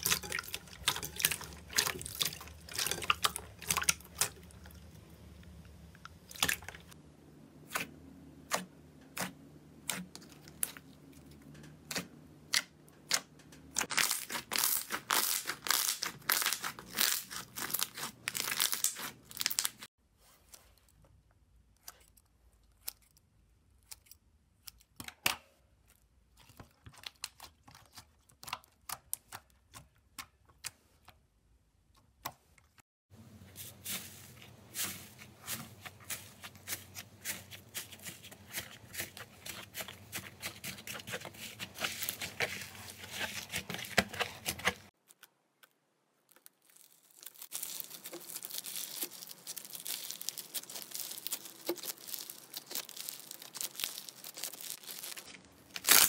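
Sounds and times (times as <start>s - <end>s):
slime popping and crackling: 13.8s - 19.9s, 46.3s - 56.0s.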